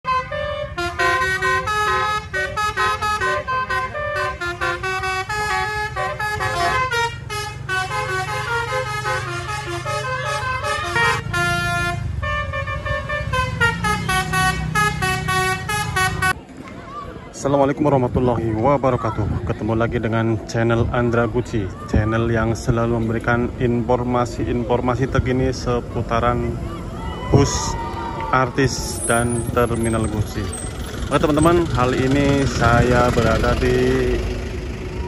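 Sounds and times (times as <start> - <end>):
multi-tone bus horn melody: 0.0 - 16.4
bus engine rumble: 0.1 - 35.0.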